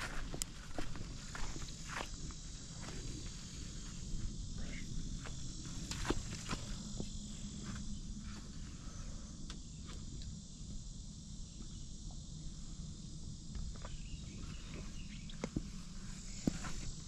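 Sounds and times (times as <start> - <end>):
footsteps on dry grass: 0.0 - 8.5
insects droning: 0.0 - 17.0.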